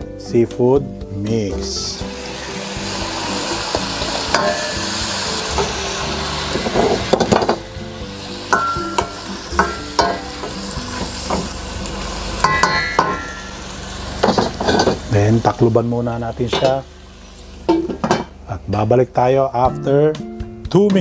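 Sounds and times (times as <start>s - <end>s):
seafood sizzling in a pan: 1.6s - 18.4s
wooden spoon knocking on pan: 8.5s - 11.5s.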